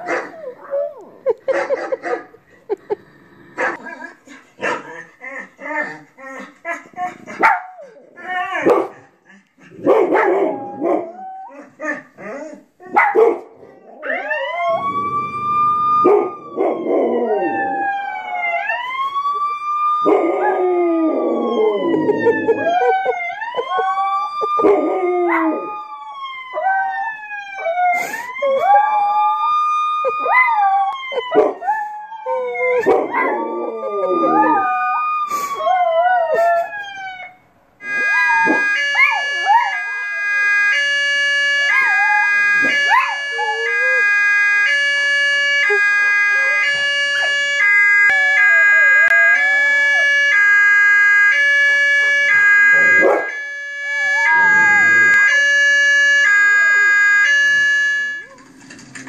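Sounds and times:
wailing siren: 0.0 - 2.3, 9.8 - 13.0, 13.6 - 59.0
dog barks: 4.6 - 5.0, 7.3 - 7.8, 8.6 - 9.1, 9.8 - 11.0, 12.9 - 13.5, 53.0 - 53.3
dogs howling: 9.8 - 19.0, 20.0 - 27.8, 28.5 - 35.1, 52.4 - 55.3.

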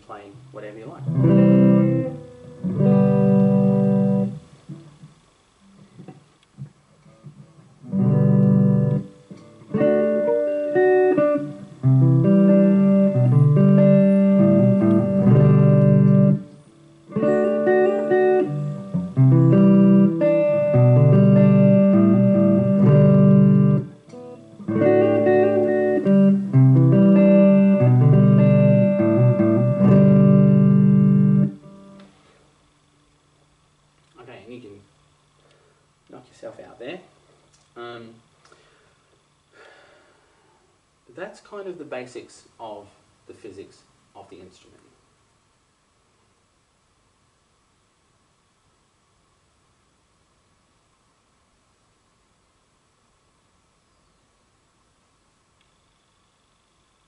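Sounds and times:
electric guitar playing: 0.8 - 5.0, 5.6 - 32.4.

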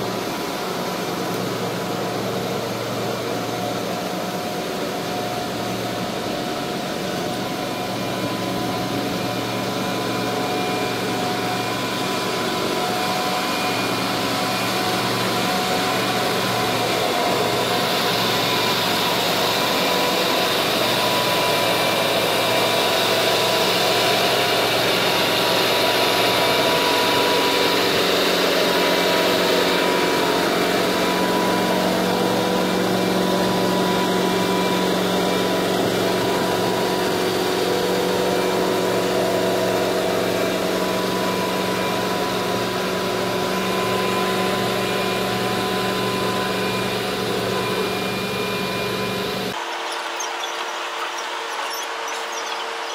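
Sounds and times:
diesel engine running: 0.0 - 49.6.

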